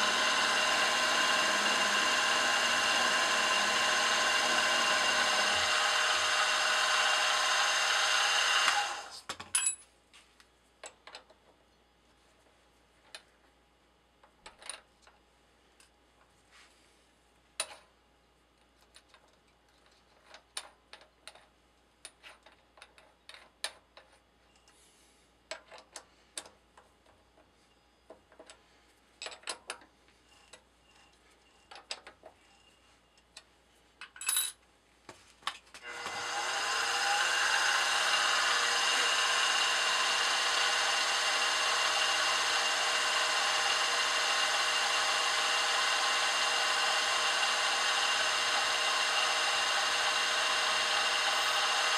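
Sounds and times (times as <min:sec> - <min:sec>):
drill bit clicking in chuck: 0:00.0 - 0:09.1, 0:35.8 - 0:51.9
milling spindle motor running: 0:00.0 - 0:09.2, 0:35.8 - 0:51.9.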